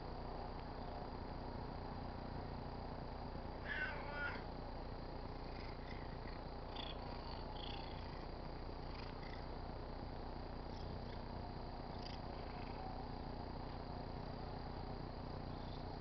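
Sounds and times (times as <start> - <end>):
cat meowing: 3.6 - 4.5
cat purring: 3.6 - 16.0.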